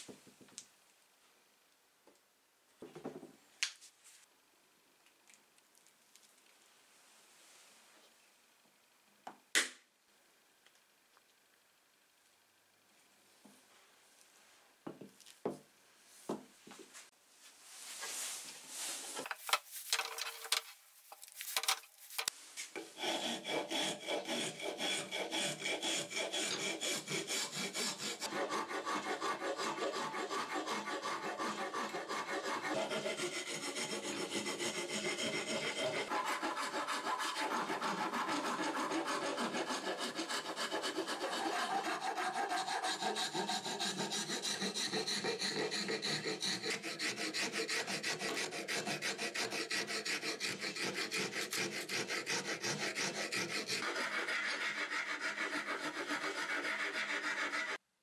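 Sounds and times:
file rasping on wood: 0:22.8 - 0:57.8.

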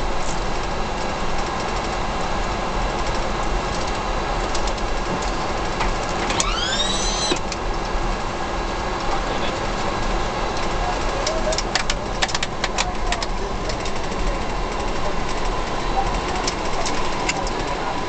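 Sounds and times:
steady rushing noise in cockpit: 0:00.0 - 0:18.0
brief rising whine: 0:06.2 - 0:07.4.

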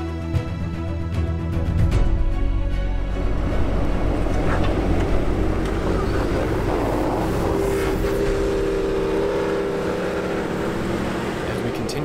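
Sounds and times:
off-road vehicle engines running: 0:02.7 - 0:12.0.

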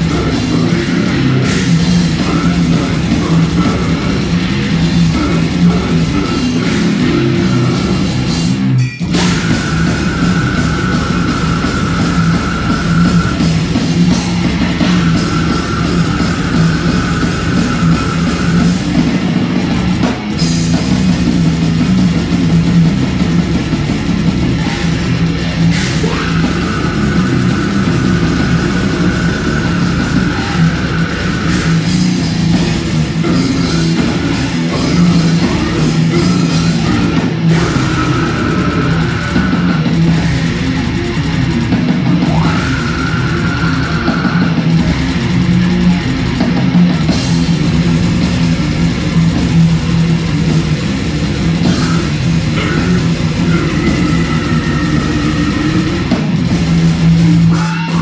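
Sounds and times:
heavy rock band playing: 0:00.0 - 0:58.0.

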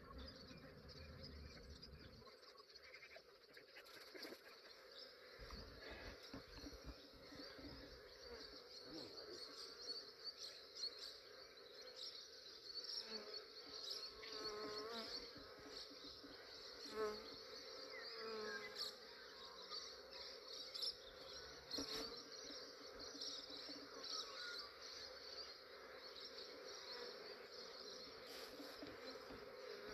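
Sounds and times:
single bees flying past: 0:16.6 - 0:19.0.

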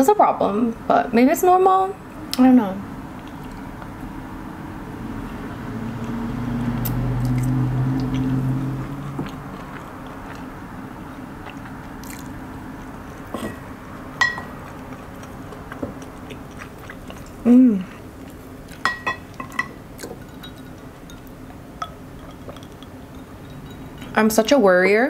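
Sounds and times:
quiet chewing: 0:03.2 - 0:03.9, 0:06.0 - 0:13.7, 0:14.5 - 0:19.4
chopsticks clinking on ceramic bowl: 0:14.2 - 0:14.5, 0:18.8 - 0:24.3.

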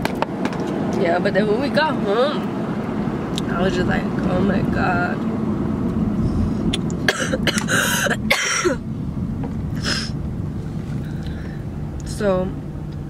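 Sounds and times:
car cabin road rumble: 0:00.0 - 0:13.0
woman coughing: 0:07.0 - 0:08.8.

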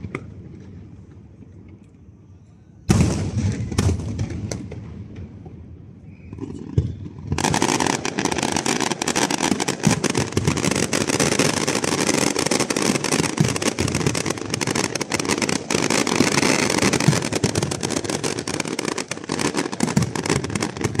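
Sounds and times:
fireworks booming and crackling: 0:00.0 - 0:01.6, 0:02.9 - 0:21.0.

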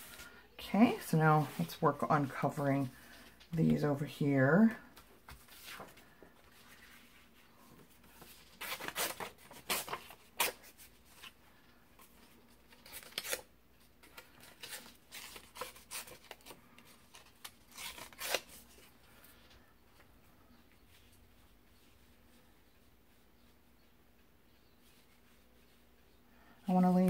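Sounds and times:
paper rustling and crinkling: 0:05.1 - 0:11.4, 0:12.0 - 0:19.3.

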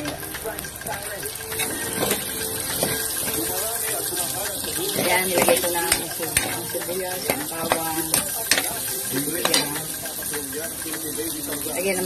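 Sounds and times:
food sizzling in oil: 0:00.0 - 0:12.0
metal spatula scraping pan: 0:01.6 - 0:10.2.

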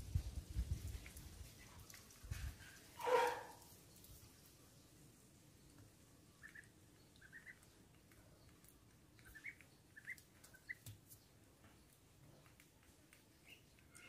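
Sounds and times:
duckling peeping: 0:06.4 - 0:12.6, 0:13.3 - 0:14.0.

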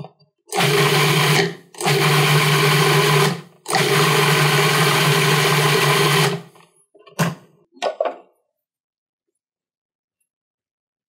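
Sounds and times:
food processor motor running: 0:00.5 - 0:06.5.

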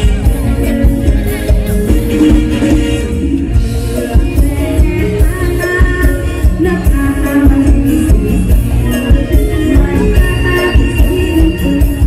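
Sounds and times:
live band playing: 0:00.0 - 0:12.0
woman singing into microphone: 0:04.0 - 0:12.0.

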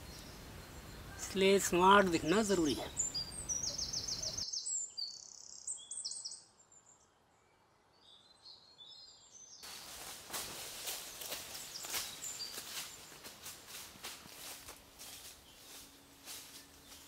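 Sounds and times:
birds chirping and trilling: 0:00.0 - 0:17.0
footsteps crunching through dry leaves: 0:09.6 - 0:17.0.

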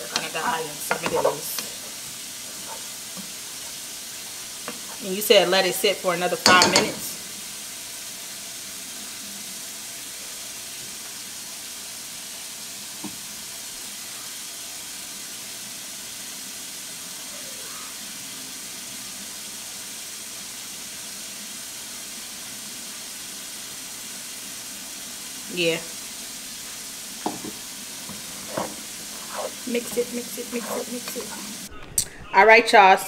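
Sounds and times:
cabbage sizzling in a pot: 0:00.0 - 0:31.7.

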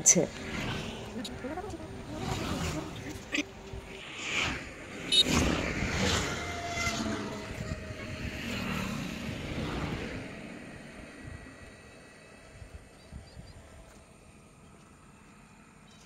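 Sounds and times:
vehicle passing by: 0:00.1 - 0:12.7.

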